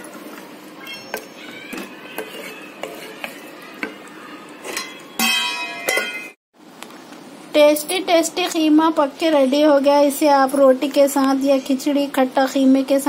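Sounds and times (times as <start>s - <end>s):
spatula scraping in pot: 1.1s - 5.2s.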